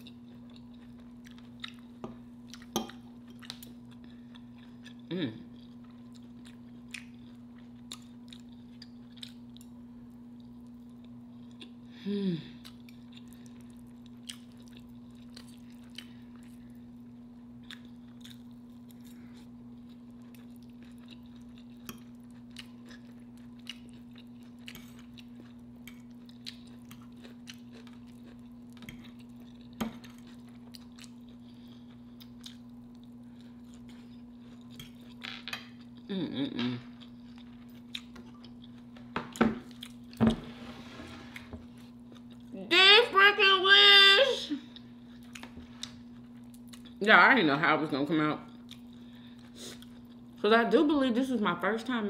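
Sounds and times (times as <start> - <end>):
chewing: 0.0 - 9.8, 12.6 - 16.8, 17.6 - 36.1, 36.8 - 40.2, 44.7 - 47.0, 48.5 - 50.3
steady low hum: 0.0 - 52.0.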